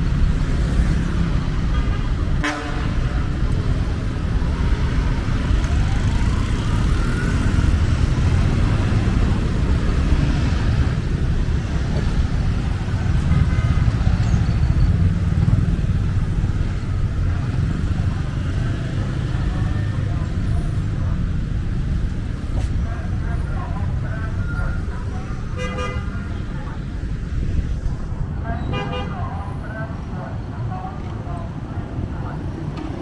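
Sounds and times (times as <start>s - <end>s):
traffic driving past: 0.0s - 33.0s.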